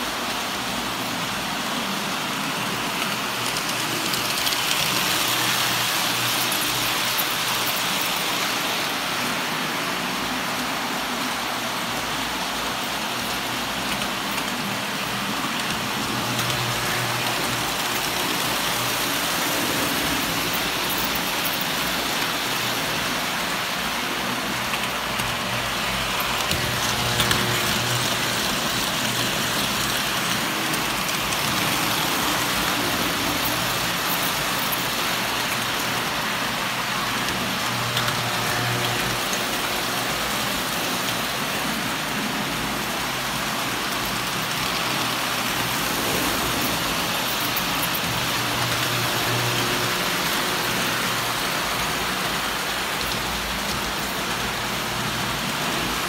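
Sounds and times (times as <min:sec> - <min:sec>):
toy train wheels rattling on rails: 0:00.0 - 0:56.0.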